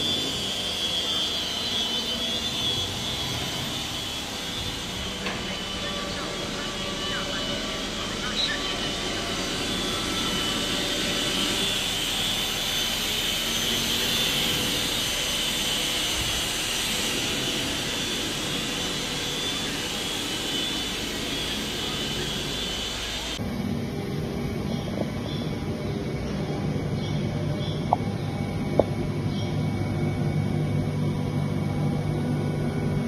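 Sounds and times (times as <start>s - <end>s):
foam-cutting machine whirring: 0.0s - 24.0s
rough machine running noise: 0.0s - 33.0s.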